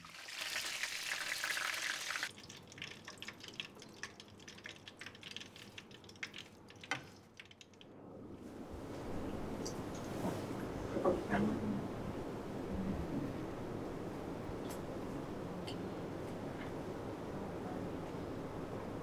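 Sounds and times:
pastries sizzling in hot oil: 0.0 - 2.3.

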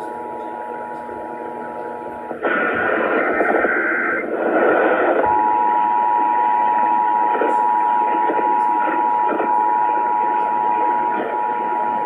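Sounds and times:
two-tone alarm over radio: 1.6 - 12.0
harsh noisy burst: 2.4 - 6.3.

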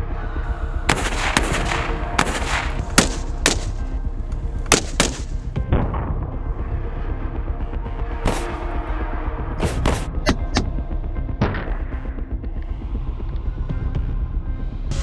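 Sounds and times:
background music with steady beat: 0.0 - 15.0
rifle gunshots: 0.9 - 3.9, 4.7 - 5.5.

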